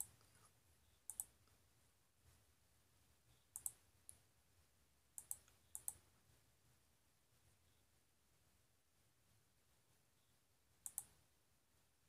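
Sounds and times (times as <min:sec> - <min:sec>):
faint sharp clicks: 0:01.1 - 0:01.6, 0:03.6 - 0:04.2, 0:05.2 - 0:06.0, 0:10.8 - 0:11.2.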